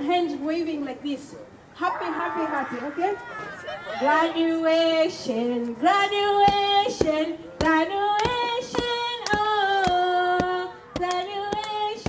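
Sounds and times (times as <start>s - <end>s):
woman singing into a microphone: 4.0s - 12.0s.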